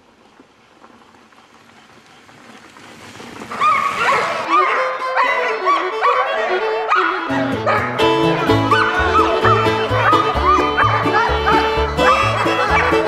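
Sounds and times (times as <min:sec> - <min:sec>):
low outdoor noise: 0:00.0 - 0:04.4
sled dogs yelping and barking: 0:03.4 - 0:13.0.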